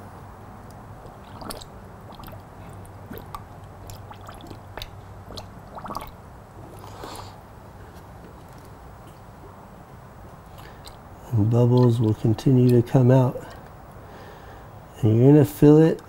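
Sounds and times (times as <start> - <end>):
bubbles popping and dripping: 1.0 - 6.2, 10.6 - 11.1
coolant gurgling through funnel: 1.0 - 7.3, 10.5 - 13.0.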